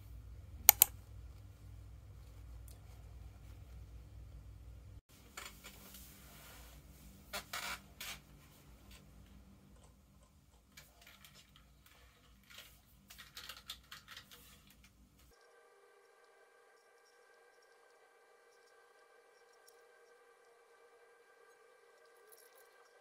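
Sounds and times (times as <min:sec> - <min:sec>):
keyboard keys clicking: 0:00.7 - 0:00.9.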